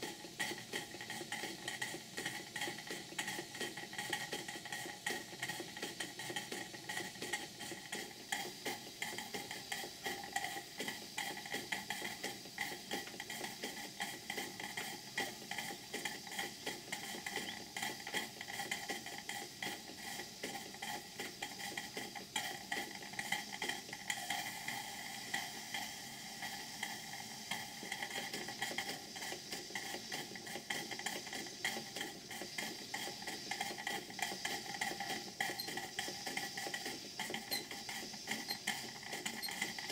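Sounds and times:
steam engines clattering: 0:26.9 - 0:39.9.

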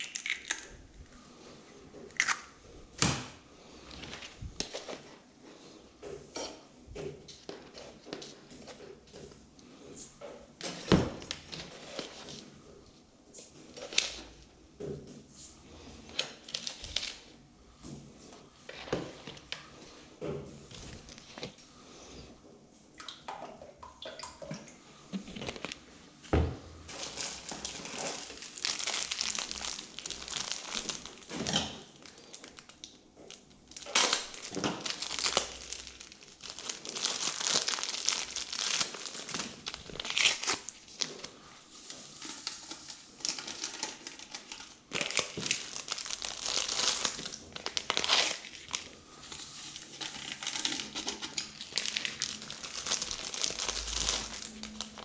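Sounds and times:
packaging crinkling: 0:26.9 - 0:41.4, 0:42.0 - 0:55.0.

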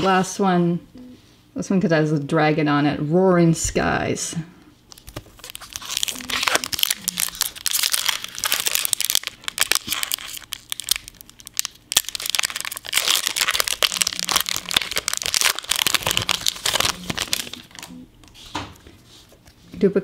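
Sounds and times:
foil wrapper crinkling and tearing: 0:04.9 - 0:17.9.

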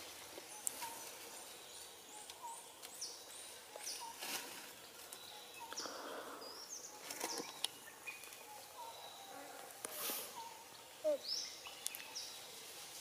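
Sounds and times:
rustling in dry leaves: 0:00.0 - 0:01.9, 0:02.8 - 0:05.4, 0:07.0 - 0:10.6, 0:11.6 - 0:13.0
birds chirping: 0:00.0 - 0:12.7
steady background hiss: 0:00.0 - 0:13.0.

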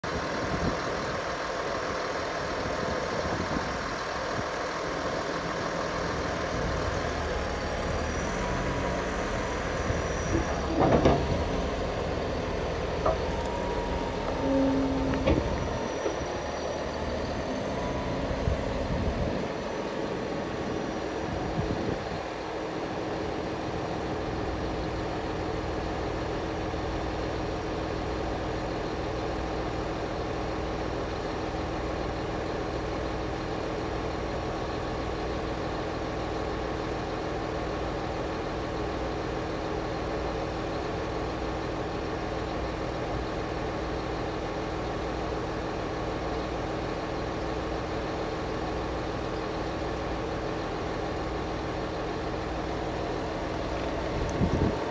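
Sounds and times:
bulldozer diesel engine idling: 0:00.0 - 0:54.9.

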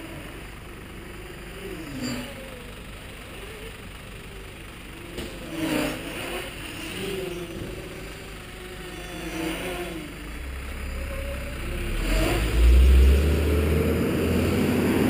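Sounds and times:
quadcopter propellers buzzing: 0:05.2 - 0:10.3.

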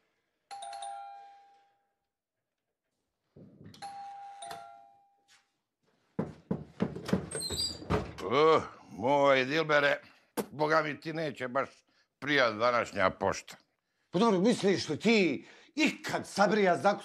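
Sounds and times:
doorbell ding-dong chime: 0:00.5 - 0:01.7, 0:03.8 - 0:05.4.

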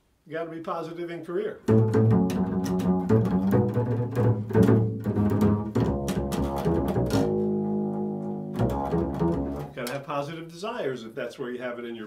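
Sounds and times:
double bass plucked notes: 0:01.6 - 0:09.9.

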